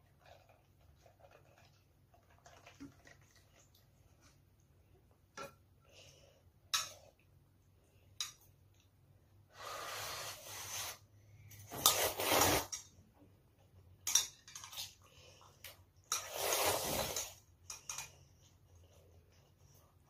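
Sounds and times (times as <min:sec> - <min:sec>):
child slurping noodles: 0:16.2 - 0:17.4.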